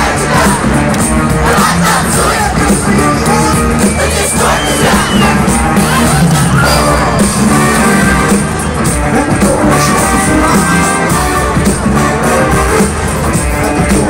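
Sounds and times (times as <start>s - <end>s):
live pop-rock band: 0.0s - 14.0s.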